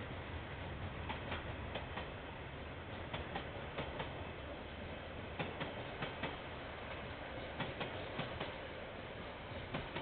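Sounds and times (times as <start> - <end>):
low train rumble: 0.0 - 10.0
train wheels clicking over rail joint: 1.0 - 2.2, 2.9 - 4.2, 5.3 - 8.6, 9.6 - 10.0.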